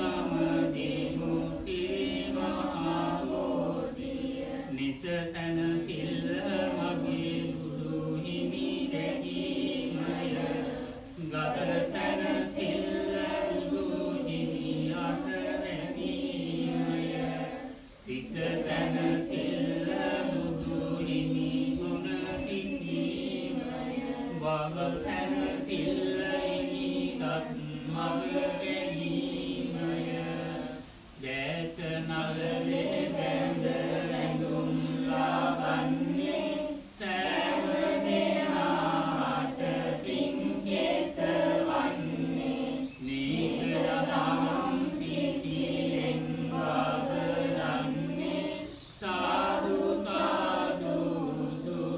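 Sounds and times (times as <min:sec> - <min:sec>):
group chanting in unison: 0:00.0 - 0:51.9.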